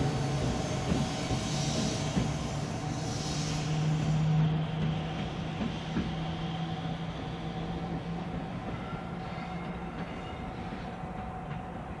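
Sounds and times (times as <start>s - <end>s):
electric locomotive humming: 0.0s - 12.0s.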